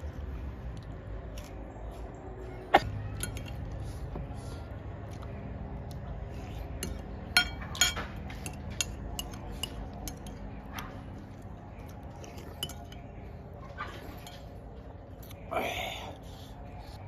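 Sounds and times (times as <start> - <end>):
metal spoon clinking on ceramic bowl: 3.2 - 3.6, 6.9 - 10.5, 12.3 - 13.1.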